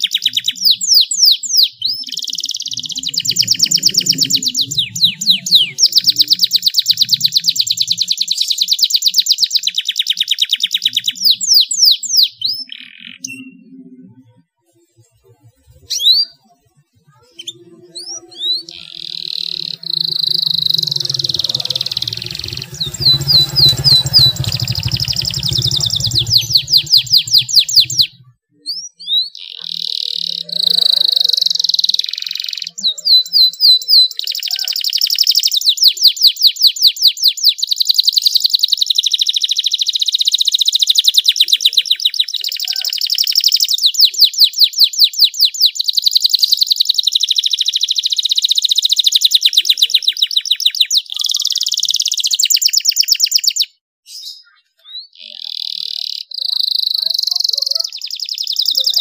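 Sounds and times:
canary singing trills: 0.0s - 14.2s, 15.4s - 59.0s
low hum: 2.8s - 6.2s, 17.6s - 28.4s.

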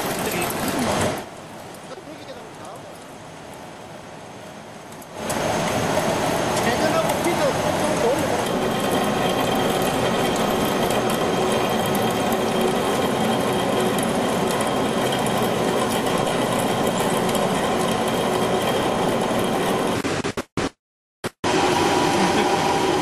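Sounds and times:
lathe cutting metal: 5.2s - 20.0s.

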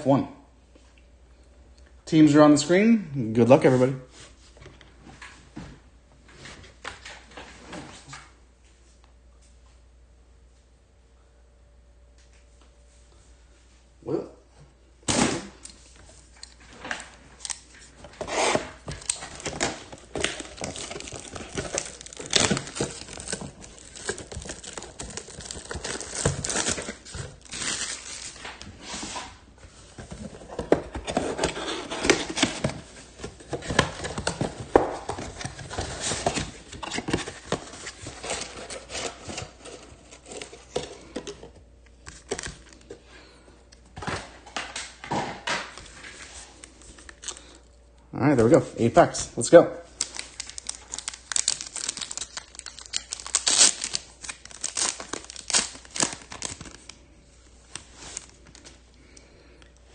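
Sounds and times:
plastic shrink wrap tearing: 17.4s - 28.6s, 50.0s - 57.0s.

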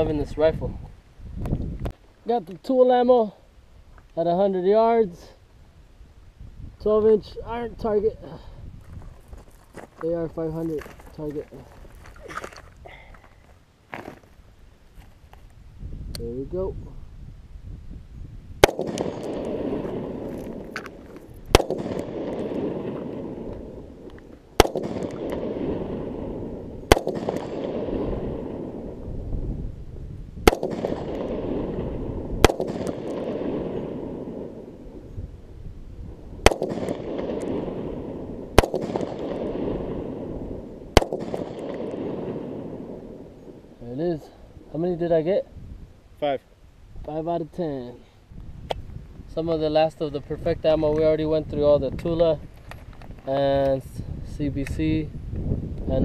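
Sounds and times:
rifle shots with echo: 18.6s - 29.0s, 30.4s - 34.8s, 36.4s - 43.6s.

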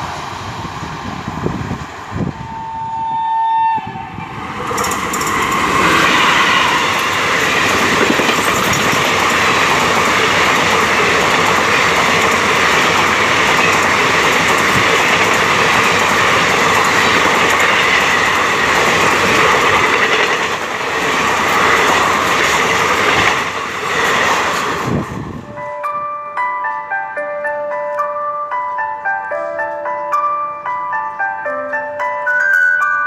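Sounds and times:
steel wheels roaring on rails: 0.0s - 25.6s
train coaches rushing past: 3.8s - 25.8s
clatter over rail joints: 4.6s - 25.0s.

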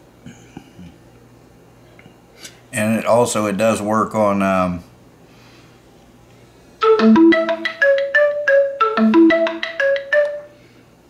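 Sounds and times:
marimba-style phone ringtone: 6.8s - 10.6s.

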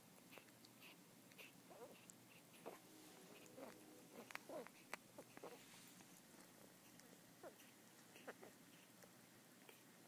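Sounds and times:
puppies suckling and smacking: 0.0s - 2.8s, 3.4s - 10.0s.

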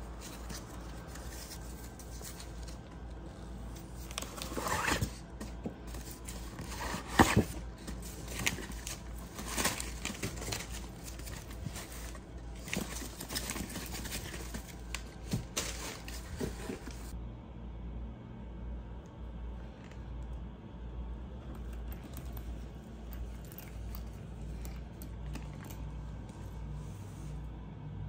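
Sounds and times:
paper packaging rustling: 0.0s - 17.2s.

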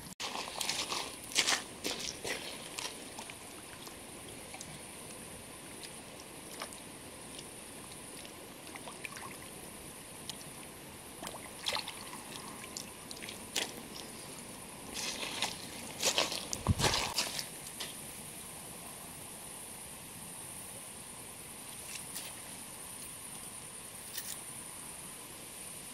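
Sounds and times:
water sloshing and splashing: 0.2s - 9.6s, 11.2s - 17.5s.

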